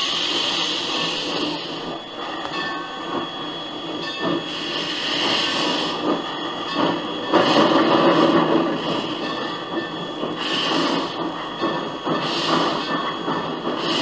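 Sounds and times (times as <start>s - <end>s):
steady steam hiss: 0.0s - 14.0s
steam locomotive exhaust chuffs: 0.0s - 14.0s.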